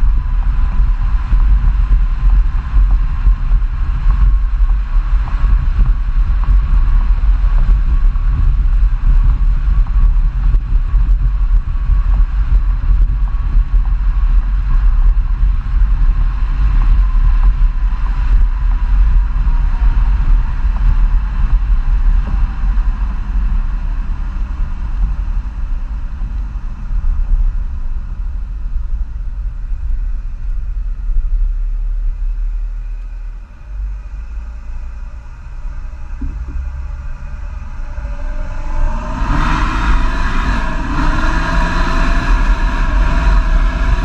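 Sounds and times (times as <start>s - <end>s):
diesel engine exhaust rumble: 0.0s - 44.0s
thin whine falling in pitch: 30.1s - 44.0s.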